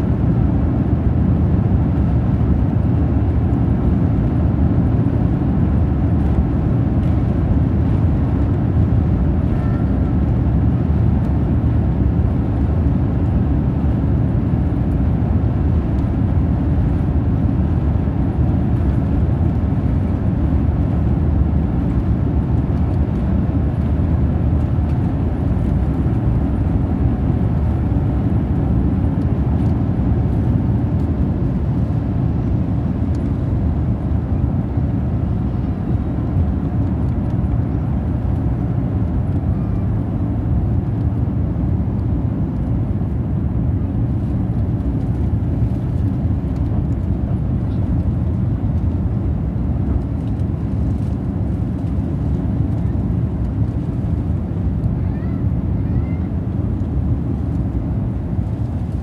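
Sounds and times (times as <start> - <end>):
jet engines and rushing air: 0.0 - 59.0.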